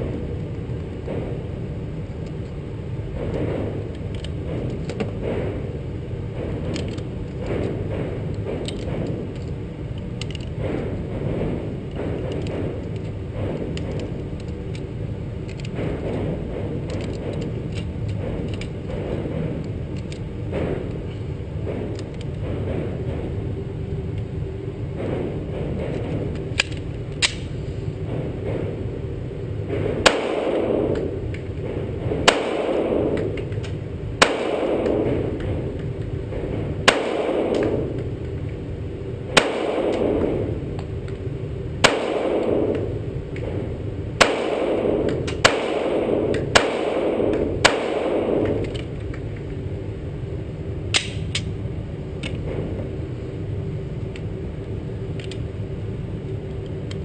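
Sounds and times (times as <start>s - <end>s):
steady low rumble: 0.0s - 57.0s
echoing gunshots: 29.6s - 38.3s, 39.3s - 41.1s, 41.7s - 49.0s.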